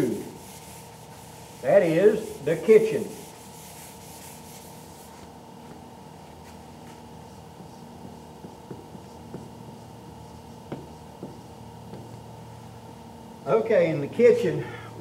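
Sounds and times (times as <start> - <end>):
eraser rubbing whiteboard: 0.0 - 5.3, 6.4 - 12.2
room hum: 0.0 - 15.0
marker writing on whiteboard: 7.6 - 12.2.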